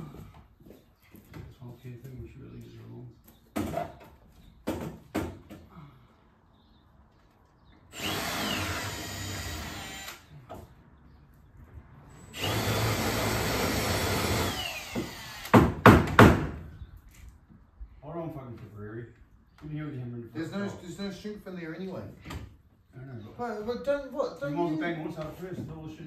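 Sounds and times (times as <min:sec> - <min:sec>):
power drill spinning: 0:07.9 - 0:10.3, 0:12.3 - 0:15.5
sharp knocks: 0:14.9 - 0:16.6.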